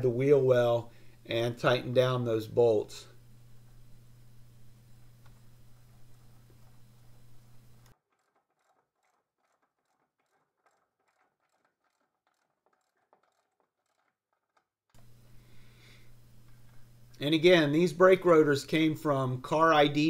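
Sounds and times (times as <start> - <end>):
low steady hum: 0.0 - 8.0, 15.0 - 20.0.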